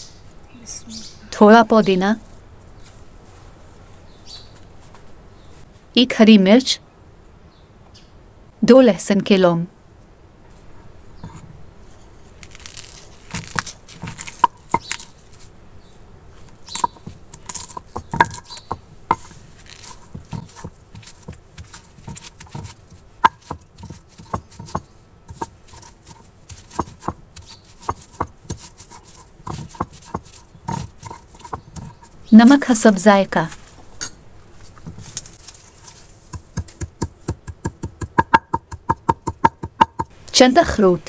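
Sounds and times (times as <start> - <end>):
stone crushing and scraping: 12.4 - 15.5, 16.4 - 32.8, 34.7 - 40.1
stone knocking on stone: 13.3 - 15.1, 16.7 - 32.2, 36.3 - 40.1.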